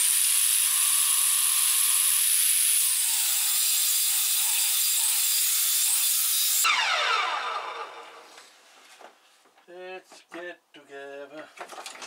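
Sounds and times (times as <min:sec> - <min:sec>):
electric saw cutting plank: 0:00.0 - 0:08.5.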